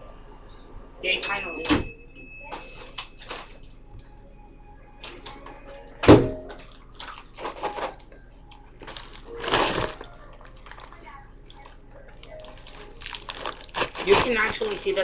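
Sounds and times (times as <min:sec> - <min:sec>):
paper popcorn bag rustling: 0:02.6 - 0:03.6, 0:06.7 - 0:15.0.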